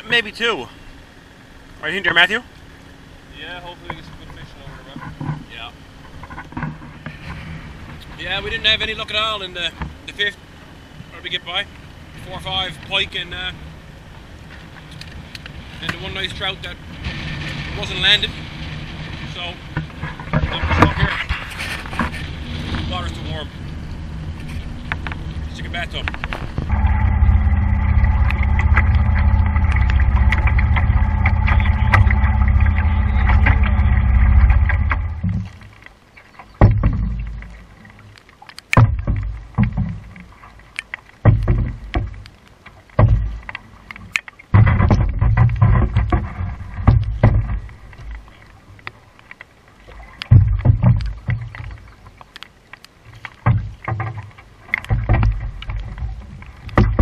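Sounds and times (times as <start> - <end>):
paddle strokes in water: 3.7 - 57.0
low rumbles on microphone: 14.7 - 35.8, 36.6 - 37.8, 38.8 - 40.4, 41.2 - 42.3, 44.5 - 48.7, 50.3 - 52.0, 54.9 - 57.0.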